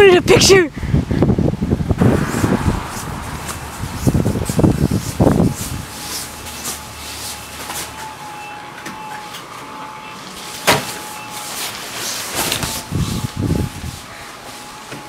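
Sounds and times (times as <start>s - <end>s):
blower fan whine: 1.0s - 15.0s.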